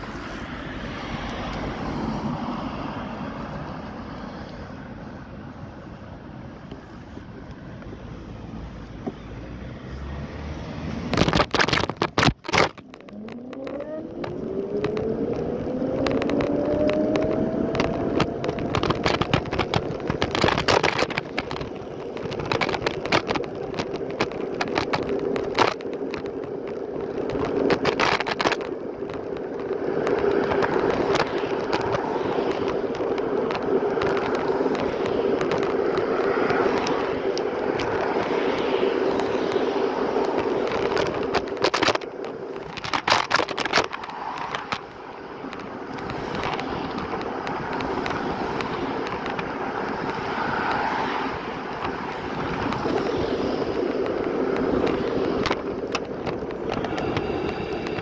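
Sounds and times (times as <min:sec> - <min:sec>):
wind noise: 0:00.0 - 0:58.0
electric scooter motor whining: 0:05.6 - 0:58.0.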